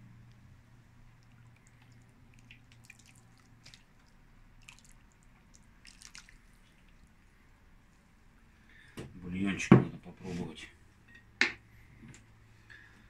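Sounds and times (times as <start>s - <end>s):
low steady hum: 0.0s - 13.0s
liquid dripping: 0.2s - 7.5s.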